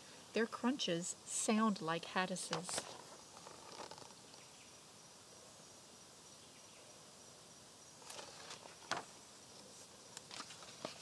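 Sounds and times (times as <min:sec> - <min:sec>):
faint hiss with high tone: 0:00.0 - 0:03.3, 0:04.1 - 0:08.1
book pages rustling: 0:08.0 - 0:09.1, 0:10.2 - 0:11.0.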